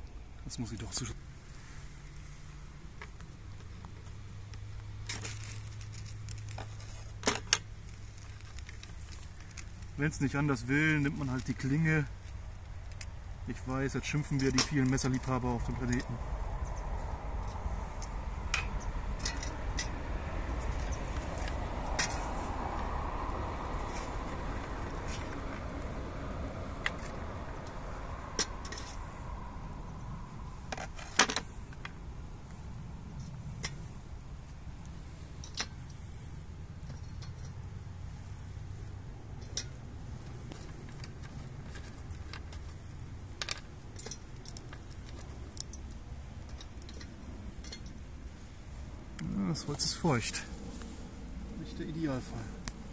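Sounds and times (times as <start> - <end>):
twigs clinking into metal stove: 3.0 - 23.0, 26.7 - 29.3, 33.2 - 36.1, 36.8 - 38.4, 39.2 - 48.4
steady low rumble: 7.6 - 52.9
twigs dropped into tin stove: 14.1 - 16.2, 17.4 - 20.0, 35.4 - 35.8.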